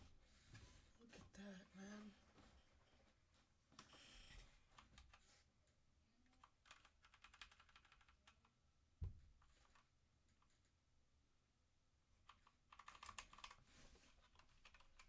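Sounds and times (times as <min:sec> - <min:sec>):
mechanical keyboard keys clicking: 0:06.4 - 0:08.4, 0:12.3 - 0:13.6, 0:14.3 - 0:15.0.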